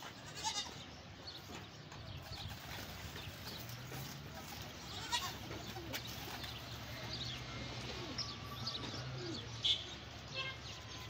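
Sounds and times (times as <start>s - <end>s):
pigeons cooing: 2.1s - 10.2s.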